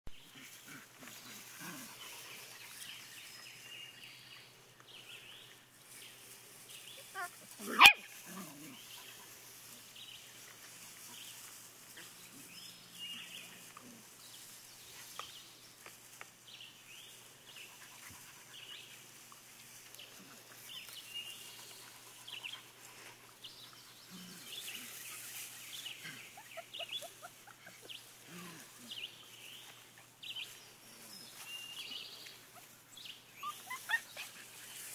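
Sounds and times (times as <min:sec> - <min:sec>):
puppy barking: 0:07.6 - 0:08.1
puppies squeaking and whimpering: 0:33.4 - 0:34.4.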